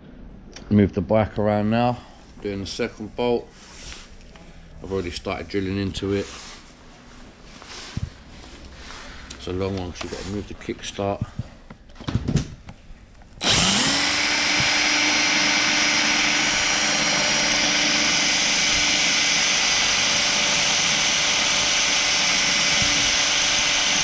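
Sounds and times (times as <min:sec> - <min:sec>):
electric drill drilling into metal: 0:13.4 - 0:24.0.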